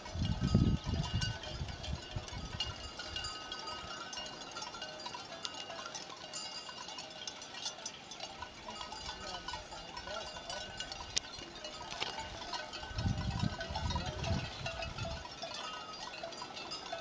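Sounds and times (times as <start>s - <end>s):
cowbells clinking and ringing: 0.0s - 17.0s.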